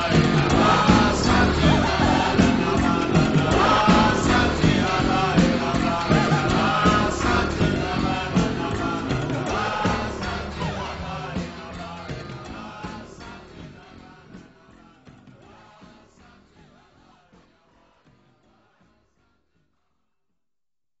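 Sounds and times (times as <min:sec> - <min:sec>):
band playing a song: 0:00.0 - 0:14.2.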